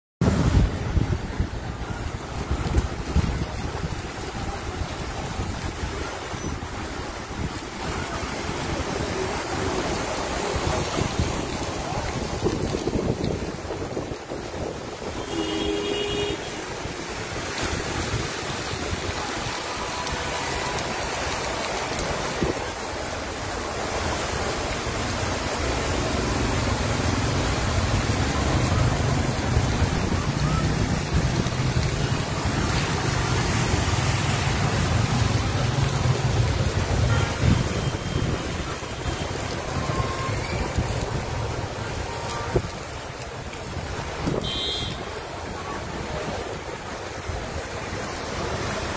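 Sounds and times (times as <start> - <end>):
cars driving through water: 0.2 - 48.9
floodwater rushing along street: 0.2 - 48.9
heavy rain: 0.2 - 48.9.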